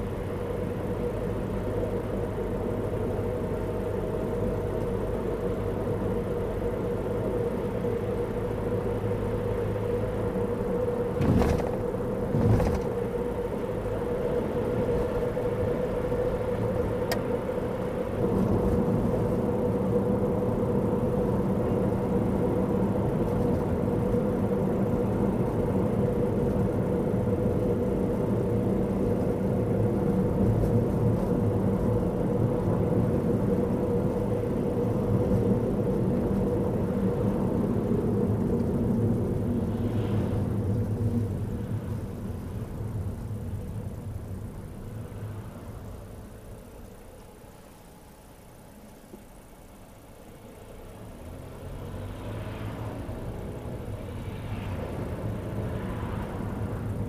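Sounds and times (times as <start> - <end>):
car engine and road noise: 0.0 - 57.0.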